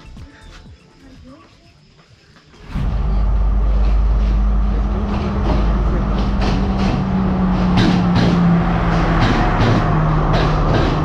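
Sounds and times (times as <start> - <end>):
train engine drone: 2.4 - 11.0.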